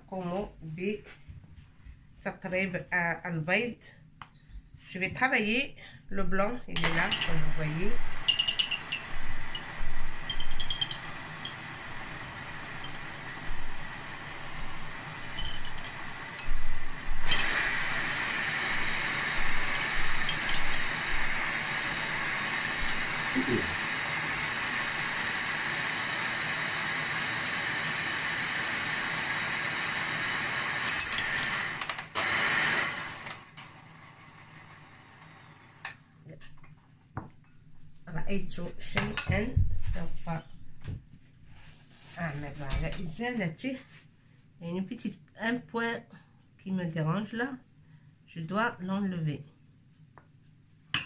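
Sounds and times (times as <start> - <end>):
hand mixer motor running: 6.8 - 35.8
beaters clinking against bowl: 8.2 - 11.6.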